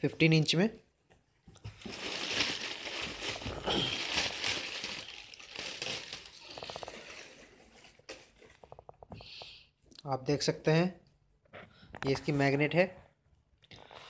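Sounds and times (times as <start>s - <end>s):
plastic bag crinkling: 1.6s - 8.9s.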